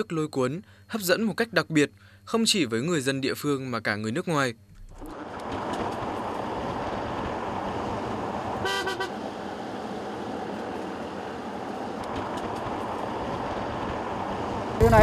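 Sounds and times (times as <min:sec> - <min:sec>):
road and wind noise: 0:04.8 - 0:15.0
short horn beep: 0:08.6 - 0:09.2.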